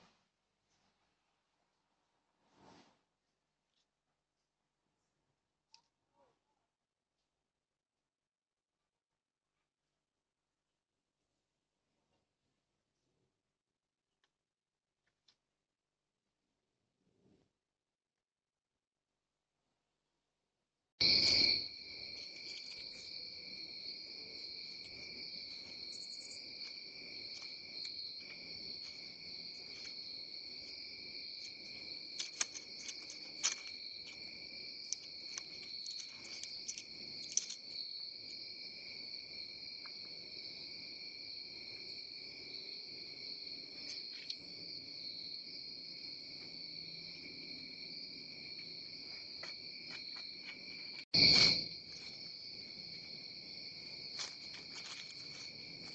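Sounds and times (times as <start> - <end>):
crickets chirring: 21.0 - 55.9
animal feeding clicks and crunches: 30.7 - 37.8, 54.2 - 55.9.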